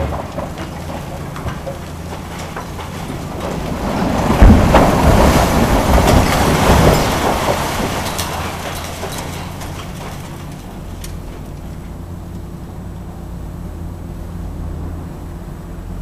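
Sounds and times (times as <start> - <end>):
concrete slab crashing down: 0.0 - 10.6
rubble crumbling and pouring: 0.0 - 12.1
excavator diesel engine hum: 0.0 - 16.0.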